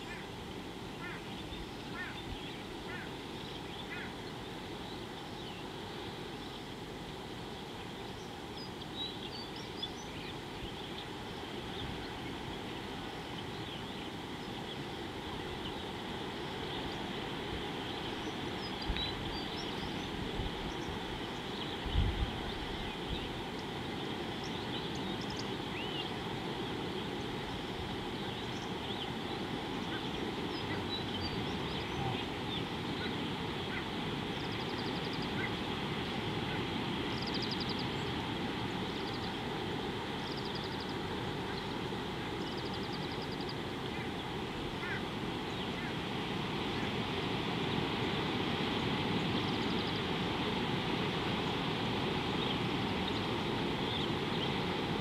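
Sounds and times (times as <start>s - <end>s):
wind: 0.0s - 55.0s
water rushing: 14.1s - 55.0s
bird chirps and trills: 17.8s - 26.2s, 26.9s - 35.6s, 37.1s - 39.4s, 40.2s - 46.0s.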